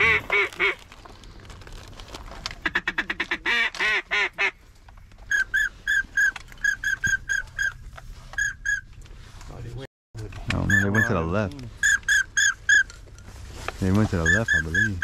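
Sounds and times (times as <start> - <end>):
duck call quacks: 2.6 - 4.6.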